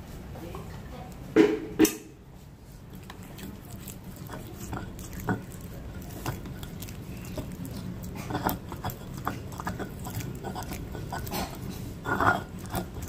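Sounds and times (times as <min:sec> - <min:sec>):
pestle mashing in mortar: 0:02.9 - 0:13.0.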